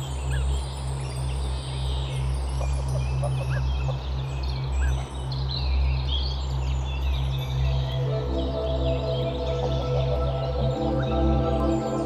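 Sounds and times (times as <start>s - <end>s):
songbirds chirping: 0.0s - 12.0s
geese calling: 2.6s - 4.0s.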